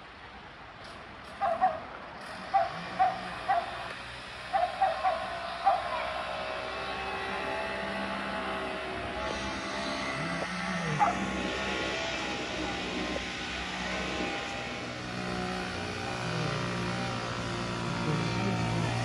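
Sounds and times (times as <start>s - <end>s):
dog yapping: 2.5s - 3.8s, 4.5s - 6.1s, 11.0s - 11.2s
steady droning hum: 2.8s - 19.0s.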